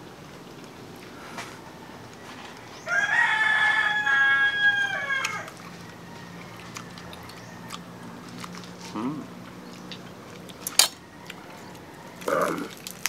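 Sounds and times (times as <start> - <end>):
rooster crowing: 1.3 - 8.4, 10.7 - 13.0.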